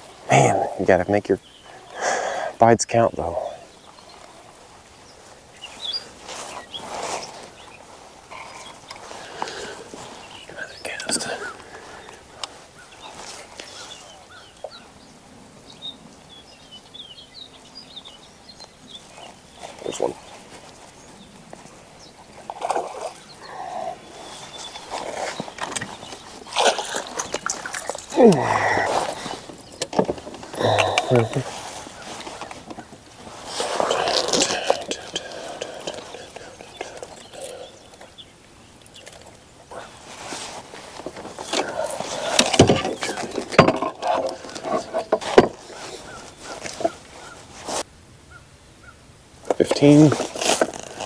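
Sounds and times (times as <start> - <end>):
water noises: 21.7 - 47.9
clatter and rustling: 40.0 - 47.8.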